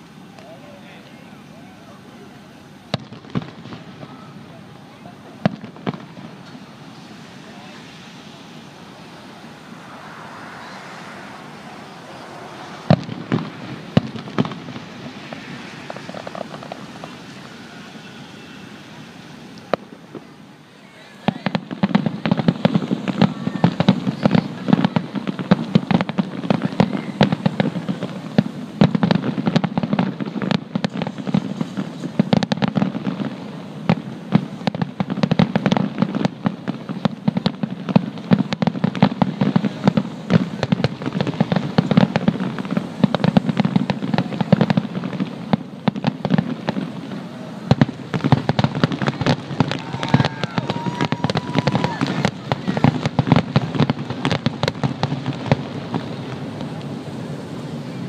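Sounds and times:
fireworks booming and crackling: 0.0 - 58.0.

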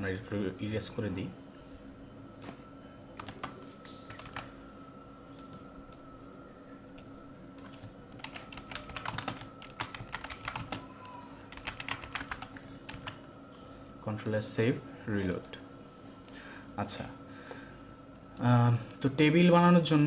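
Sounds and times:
faint steady hum: 0.0 - 20.0
computer keyboard typing: 3.2 - 4.5, 7.6 - 10.9, 11.5 - 13.2.

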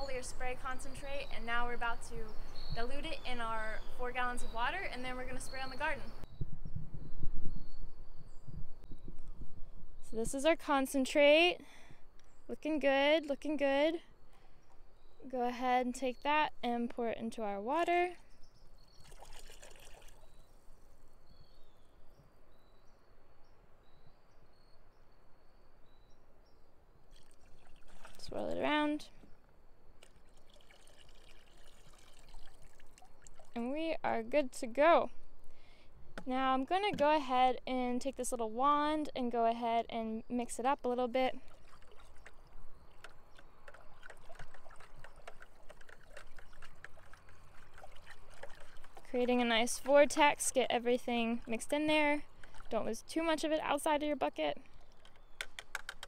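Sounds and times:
liquid pouring into water: 19.0 - 20.4, 27.1 - 28.3, 30.0 - 33.6, 41.4 - 49.1.

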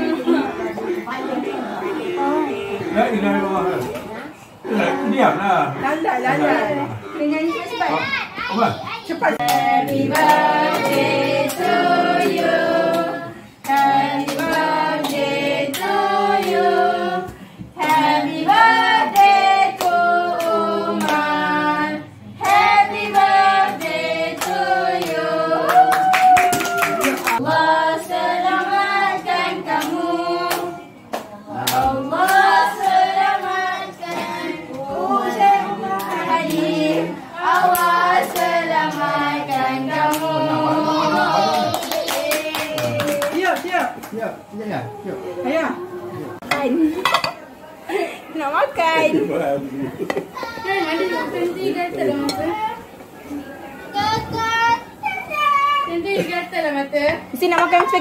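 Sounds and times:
group singing a birthday song: 0.0 - 8.0, 9.1 - 55.0, 55.9 - 58.0
hands clapping: 24.4 - 27.4, 41.5 - 44.2.

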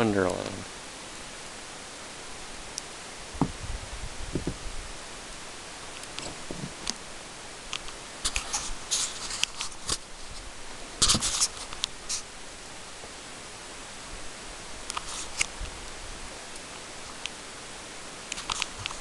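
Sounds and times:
steady hiss: 0.0 - 19.0
soft low thumps: 3.4 - 4.9
scratchy rustles and clicks: 7.8 - 12.3, 14.9 - 15.6.

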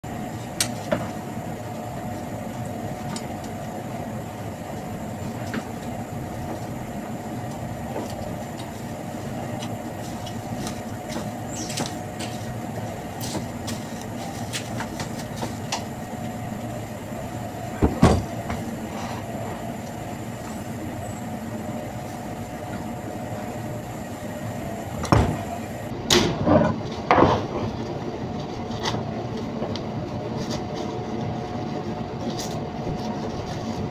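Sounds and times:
refrigeration equipment humming: 0.0 - 33.9.

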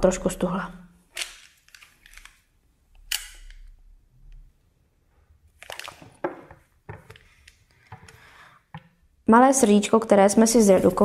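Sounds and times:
hands handling clay sheets: 10.4 - 11.0
rustling scrapes: 10.5 - 11.0.

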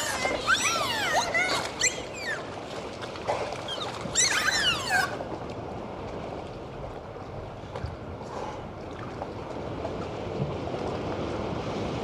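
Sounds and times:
dolphins whistling underwater: 0.0 - 2.7, 3.3 - 5.3
underwater wash: 0.0 - 12.0
dolphin chirps and clicks: 0.3 - 2.5, 3.7 - 5.2.

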